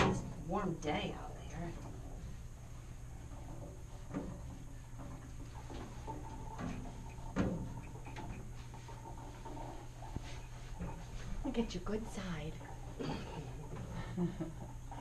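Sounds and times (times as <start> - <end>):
steady low hum: 0.0 - 15.0
light knocks and rustles: 3.2 - 11.7.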